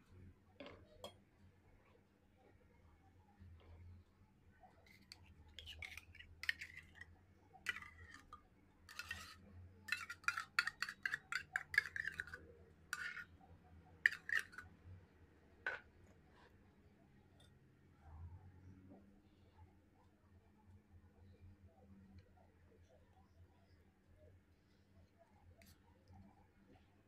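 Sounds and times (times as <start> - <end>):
metal spoon scraping glass jar: 4.9 - 7.0, 7.7 - 13.3, 14.1 - 14.7.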